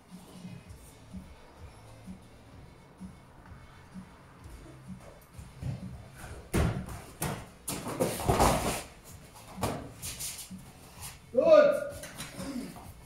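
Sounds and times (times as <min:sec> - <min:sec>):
hands and feet thudding on mats: 0:04.4 - 0:11.3.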